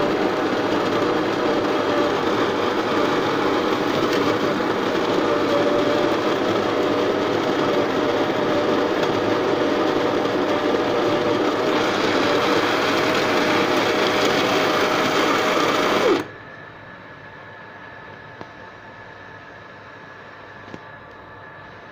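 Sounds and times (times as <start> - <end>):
espresso machine pump buzzing: 0.0 - 16.4.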